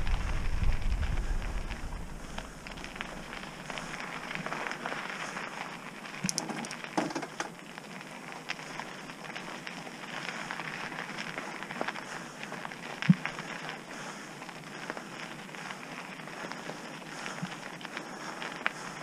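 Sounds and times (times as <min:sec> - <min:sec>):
bike tyres crunching over gravel: 0:00.0 - 0:19.0
small clicks: 0:06.2 - 0:07.6.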